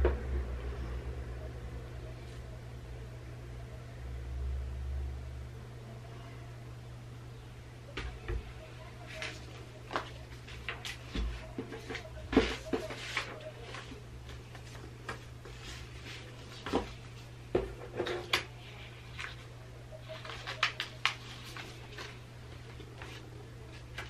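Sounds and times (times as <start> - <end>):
low steady hum: 0.0 - 24.0
paper rustling and folding: 9.0 - 17.3, 17.9 - 24.0.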